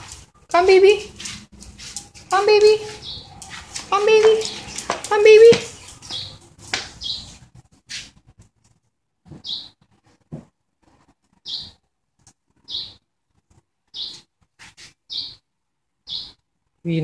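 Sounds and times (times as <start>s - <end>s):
bird chirping: 2.0s - 7.5s, 9.3s - 9.9s, 11.3s - 11.9s, 12.6s - 13.0s, 13.9s - 16.4s.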